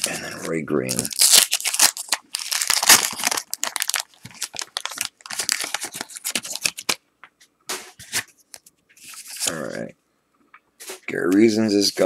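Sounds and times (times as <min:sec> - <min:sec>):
wax paper wrapper crinkling: 0:00.0 - 0:07.0.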